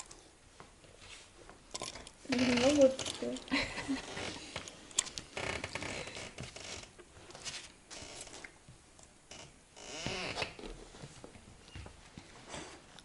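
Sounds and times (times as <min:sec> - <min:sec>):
soft rustling: 0:00.4 - 0:01.7, 0:06.3 - 0:08.5.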